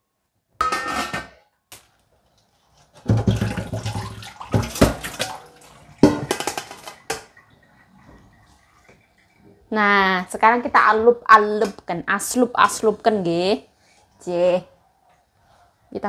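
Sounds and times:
metal bowl knocking and rattling: 0.6 - 1.4, 3.0 - 5.4, 6.0 - 7.4
tap water running into bowl: 3.0 - 9.6.

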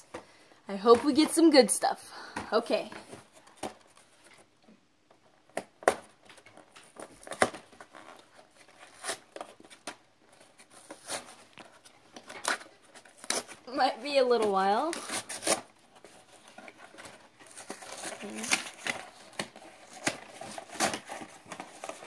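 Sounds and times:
plastic wrap crinkling: 6.0 - 22.0.

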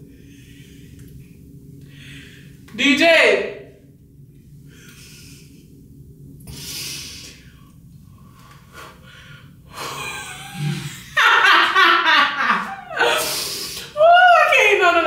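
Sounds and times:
woman laughing: 9.8 - 13.3.

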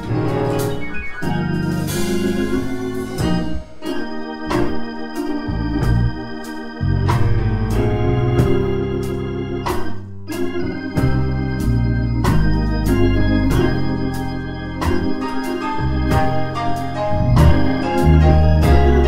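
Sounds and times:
sharp percussive accents: 0.0 - 3.8
bass line: 0.0 - 19.0
organ chords: 0.0 - 19.0.

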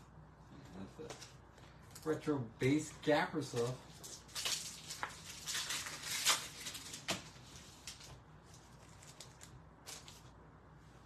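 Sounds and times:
foil wrapper crinkling and tearing: 3.6 - 10.3.

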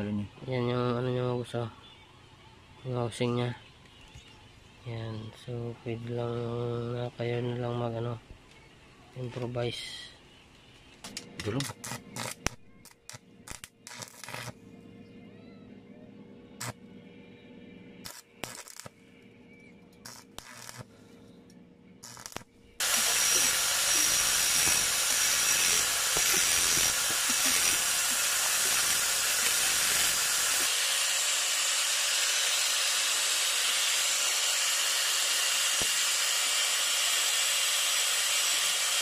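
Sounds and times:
angle grinder grinding steel: 11.5 - 14.6, 20.0 - 20.9, 22.0 - 39.0.

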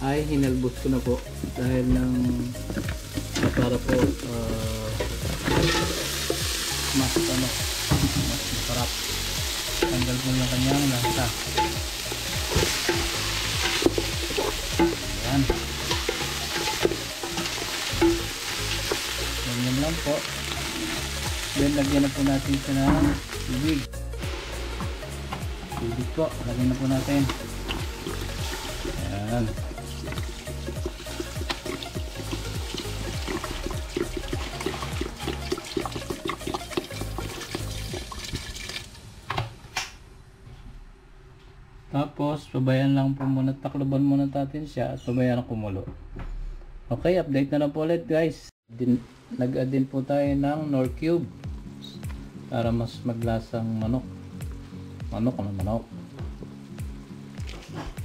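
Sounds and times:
chicken sizzling in a pot: 2.3 - 39.0
utensil scraping a pot: 10.8 - 19.4
water pouring into metal pot: 26.8 - 39.0.

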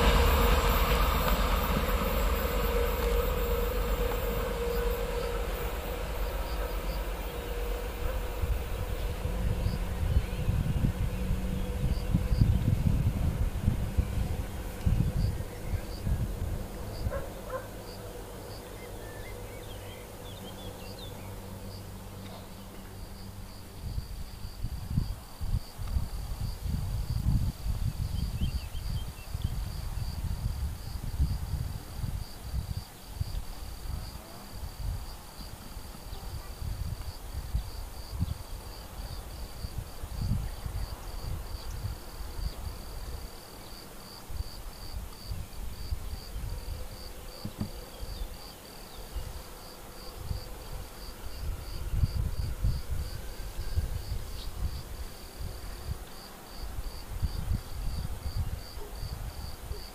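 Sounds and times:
low rumbling noise: 0.0 - 32.8
insect chirping: 0.0 - 59.9.

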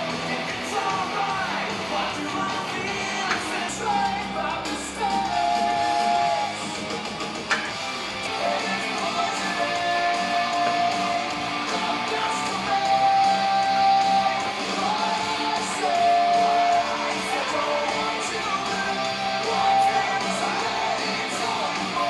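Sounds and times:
background music with held notes: 0.0 - 22.0.

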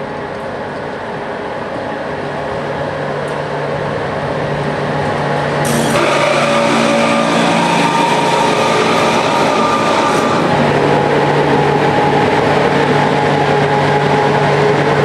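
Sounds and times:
electric locomotive hum: 0.0 - 15.0
whining tones over hiss: 5.6 - 14.7.

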